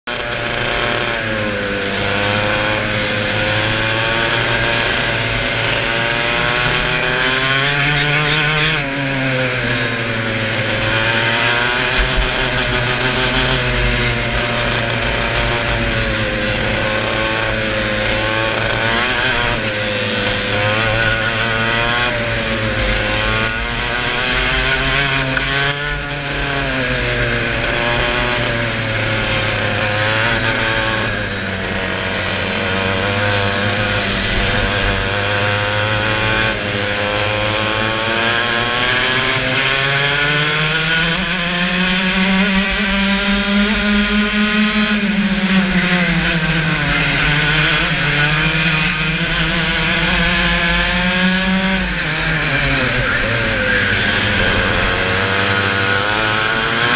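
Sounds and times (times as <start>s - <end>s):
go-kart engine revving: 0.0s - 56.9s
wind rushing over microphone: 51.9s - 56.9s.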